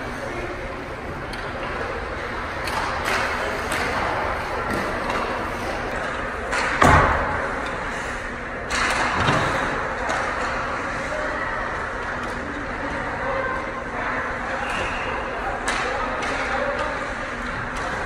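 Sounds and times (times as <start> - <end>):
arena noise: 0.0 - 18.0
hockey pucks hitting boards: 2.6 - 7.7, 15.6 - 18.0.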